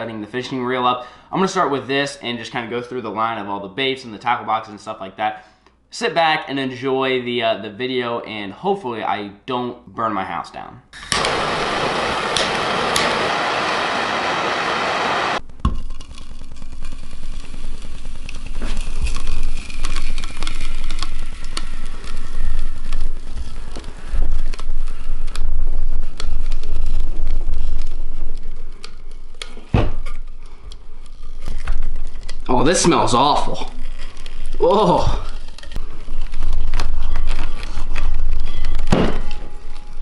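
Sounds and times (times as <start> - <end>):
blowtorches hissing: 11.0 - 15.4, 17.1 - 28.7
crackles: 11.0 - 40.0.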